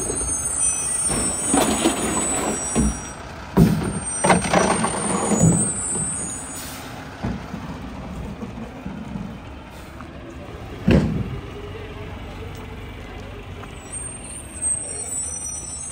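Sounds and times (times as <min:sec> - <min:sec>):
garbage truck running: 0:00.0 - 0:15.9.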